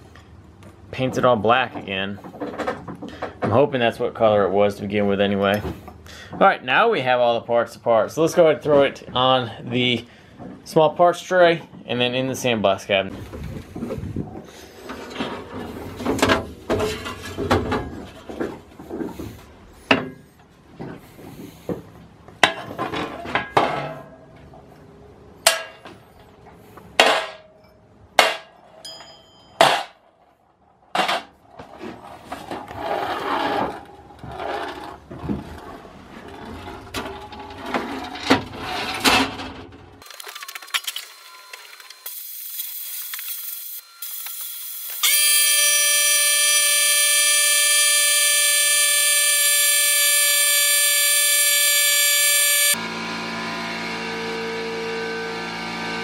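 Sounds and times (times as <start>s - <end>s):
sandblasting cabinet whine: 41.0s - 56.0s.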